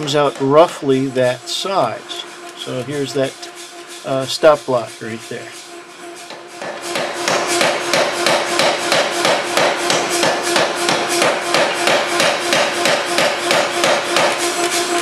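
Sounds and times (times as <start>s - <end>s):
forging hammer pounding metal: 0.0s - 2.0s, 6.2s - 15.0s
steady machine hum: 0.0s - 15.0s.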